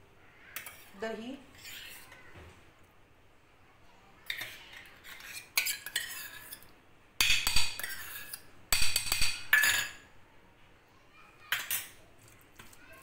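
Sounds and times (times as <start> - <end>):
spoon clinking against steel bowls: 4.3 - 10.1, 11.5 - 12.0.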